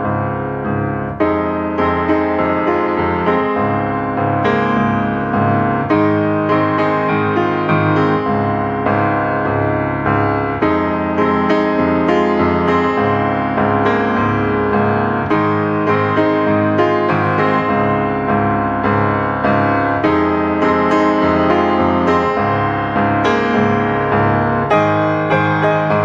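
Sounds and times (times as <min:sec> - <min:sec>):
piano-like keyboard melody: 0:00.0 - 0:26.0.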